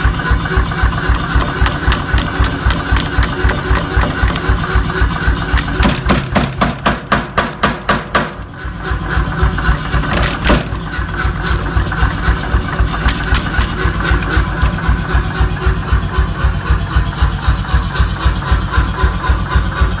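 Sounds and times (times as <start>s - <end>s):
power hammer pounding: 0.0s - 20.0s
low motor rumble: 8.3s - 20.0s.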